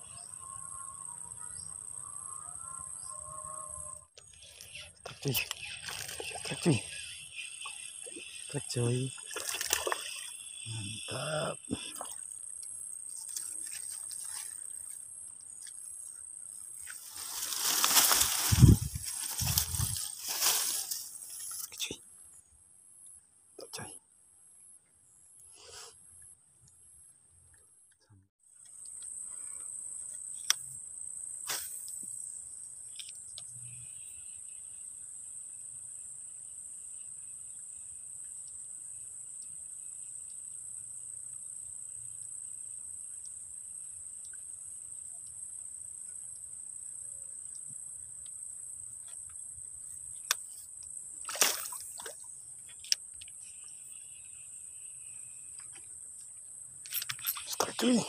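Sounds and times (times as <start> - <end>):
high-pitched insect drone: 0.0 - 15.0, 15.6 - 22.0, 51.3 - 58.0
lower insect chorus: 0.0 - 27.2, 28.5 - 58.0.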